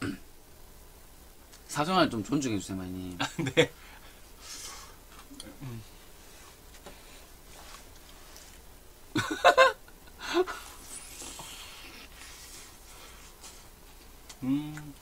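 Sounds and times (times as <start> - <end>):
faint eating sounds: 3.7 - 8.7, 10.4 - 15.0
man making wordless vocal sounds: 5.3 - 5.9, 14.3 - 15.0.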